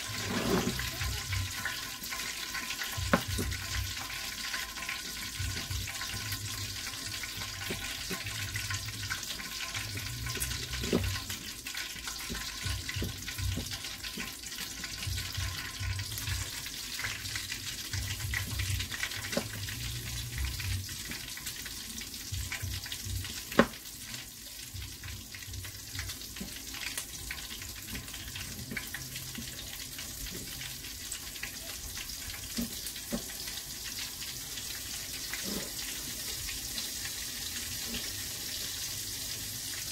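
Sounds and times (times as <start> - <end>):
oil sizzling in a pot: 0.0 - 39.9.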